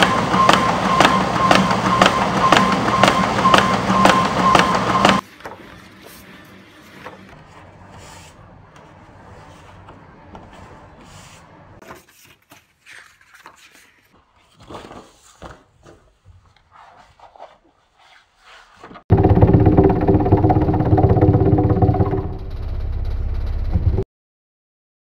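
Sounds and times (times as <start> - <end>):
paper sheets rustling: 5.2 - 19.0
paper jogger vibrating hum: 19.1 - 24.0.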